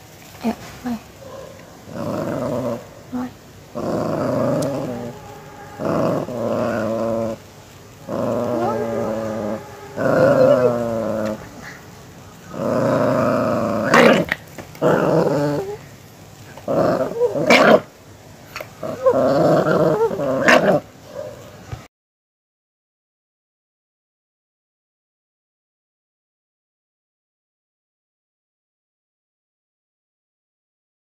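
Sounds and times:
dog growling: 1.8s - 17.9s, 18.5s - 21.3s.

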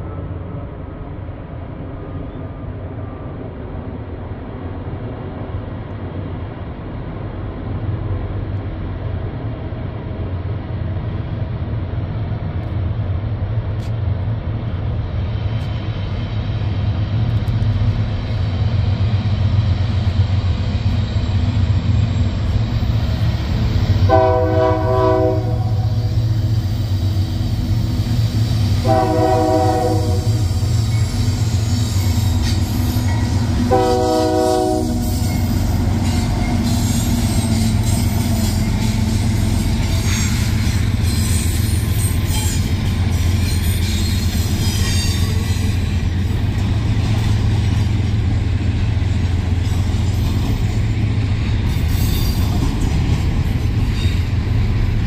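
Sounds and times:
diesel locomotive engine rumble: 0.0s - 55.0s
locomotive air horn blasts: 24.1s - 26.0s, 28.8s - 30.5s, 33.6s - 35.2s.

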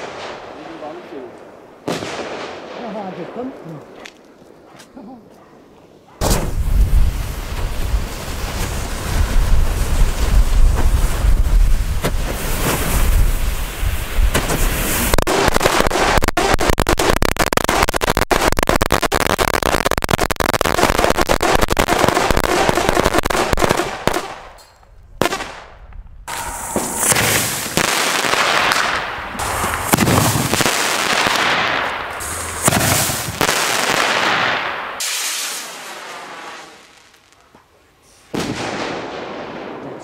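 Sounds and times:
rocket hissing upward: 26.3s - 36.9s
ground firework hissing: 29.4s - 30.9s, 32.1s - 33.5s.

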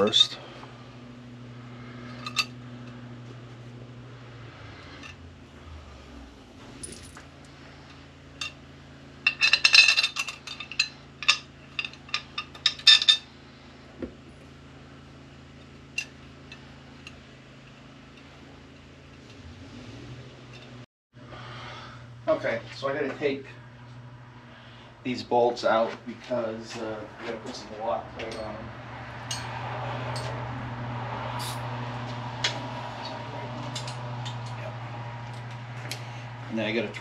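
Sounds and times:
metal tools clinking and rattling: 2.1s - 2.6s, 6.7s - 7.2s, 9.2s - 13.3s, 28.2s - 28.6s, 31.3s - 31.7s, 33.6s - 34.6s.

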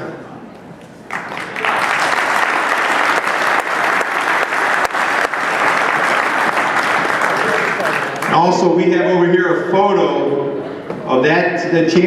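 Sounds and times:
crowd applauding: 1.0s - 8.7s.

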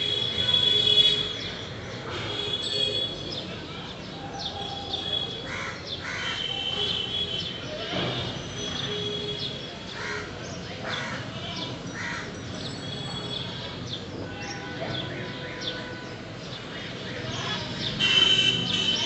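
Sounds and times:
crow cawing: 5.5s - 6.5s, 12.0s - 12.4s.

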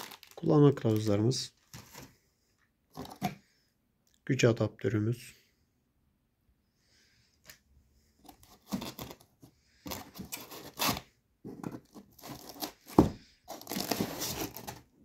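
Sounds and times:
cardboard scraping and rustling: 8.3s - 14.9s.

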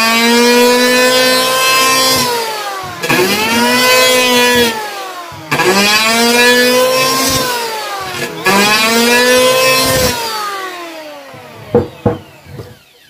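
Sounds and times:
electric hand planer whine: 0.0s - 13.0s.

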